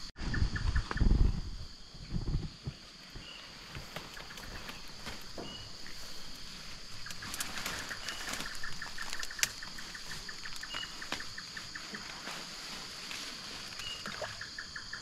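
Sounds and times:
hands rustling leaves: 3.6 - 14.4
bird chirps: 7.0 - 12.0, 13.8 - 15.0.

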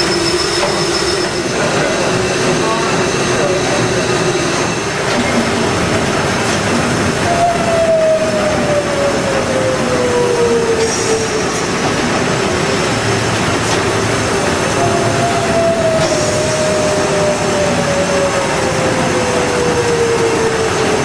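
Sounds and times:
steam engine machinery noise: 0.0 - 21.0
tone sliding downward in pitch: 14.0 - 21.0.

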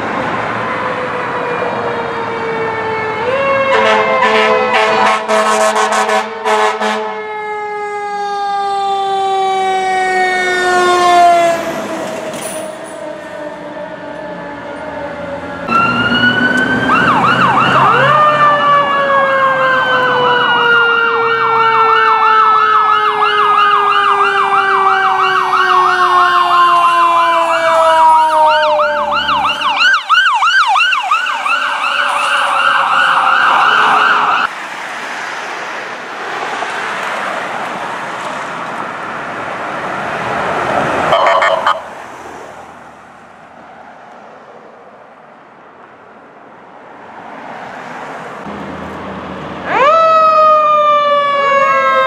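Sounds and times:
fire engine pulling away: 0.0 - 35.0, 48.4 - 52.0
ambulance passing close by: 0.0 - 52.0
long falling siren tone: 0.5 - 5.2, 6.0 - 34.5, 41.1 - 41.9, 49.6 - 52.0
electronic yelp siren: 0.6 - 34.5, 41.1 - 42.0, 49.6 - 52.0
short loud horn blast: 3.7 - 7.1.

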